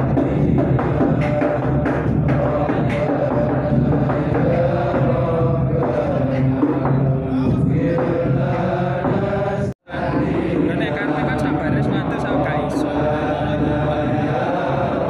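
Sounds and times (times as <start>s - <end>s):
voices chanting long notes: 0.0s - 15.0s.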